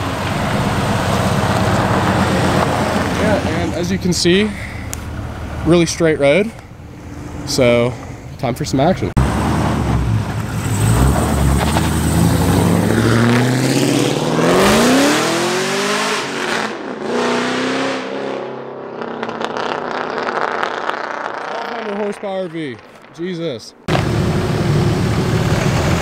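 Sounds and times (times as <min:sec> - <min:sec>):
car engine accelerating: 0:00.0 - 0:08.0, 0:09.0 - 0:23.1, 0:23.8 - 0:26.0.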